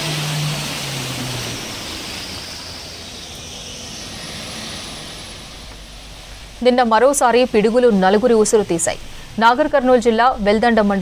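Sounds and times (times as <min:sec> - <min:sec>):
low engine drone: 0:00.0 - 0:08.4.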